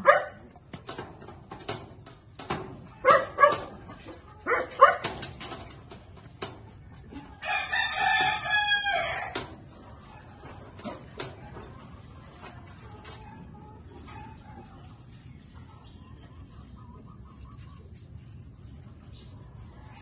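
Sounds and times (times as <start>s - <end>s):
rooster crowing: 7.4s - 9.4s.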